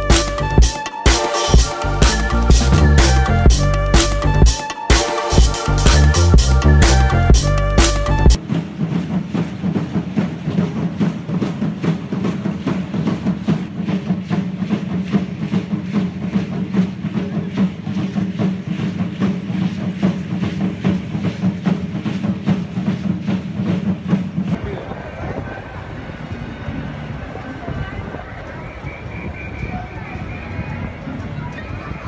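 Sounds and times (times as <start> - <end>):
large drums beating: 0.0 - 24.6.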